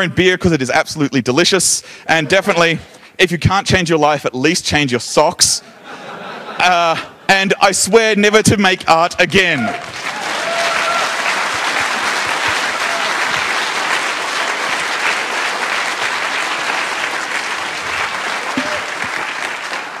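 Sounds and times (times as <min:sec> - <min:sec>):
audience clapping: 0:09.5 - 0:20.0.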